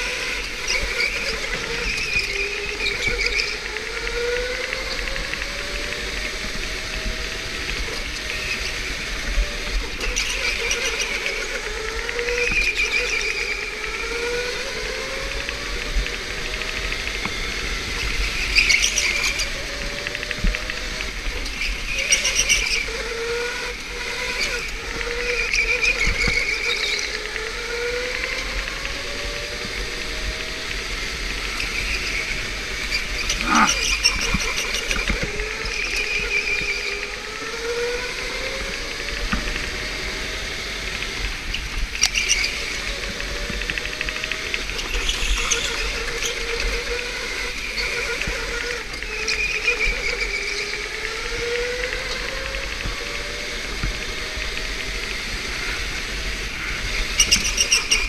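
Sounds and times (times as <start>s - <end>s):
electric go-kart motor whining: 0.0s - 58.0s
tyres squealing: 33.3s - 34.1s.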